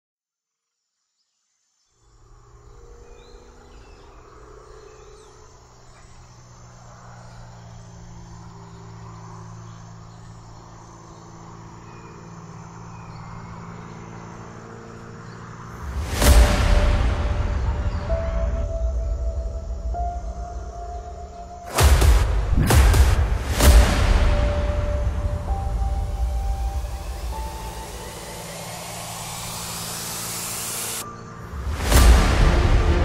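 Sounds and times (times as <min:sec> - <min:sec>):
cricket-like chirping: 0:01.9 - 0:16.4, 0:17.0 - 0:21.8, 0:24.4 - 0:31.9
low drone: 0:02.0 - 0:33.0
loud cinematic hit with whoosh: 0:21.7 - 0:28.1.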